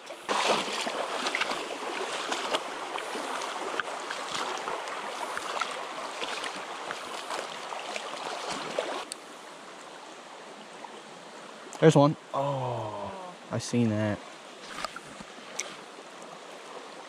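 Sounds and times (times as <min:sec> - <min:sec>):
splashing footsteps in water: 0:00.0 - 0:09.1
water rushing: 0:00.0 - 0:17.0.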